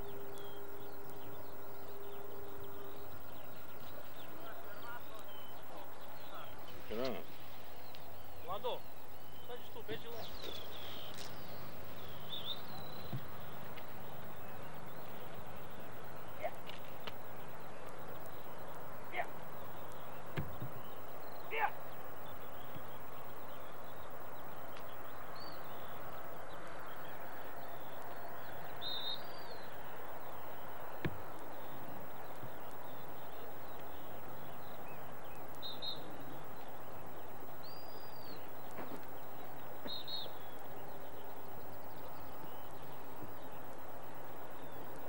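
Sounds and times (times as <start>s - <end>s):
high bird chirps: 0.0s - 15.8s
open field background noise: 0.0s - 45.0s.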